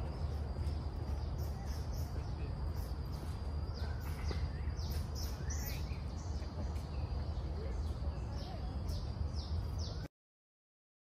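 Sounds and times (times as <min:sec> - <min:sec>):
wild birds chirping: 0:00.0 - 0:10.1.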